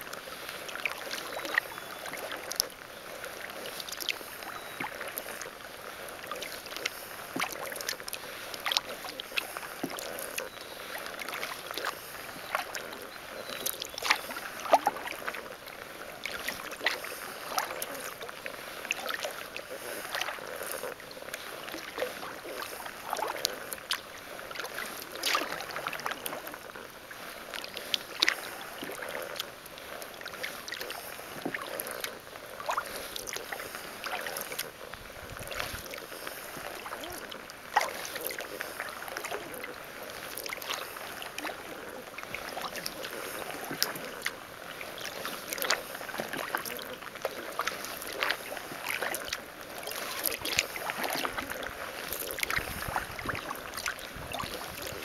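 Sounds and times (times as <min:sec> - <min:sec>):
kayak paddle splashing in water: 0:00.0 - 0:55.0
water dripping from paddle: 0:00.1 - 0:55.0.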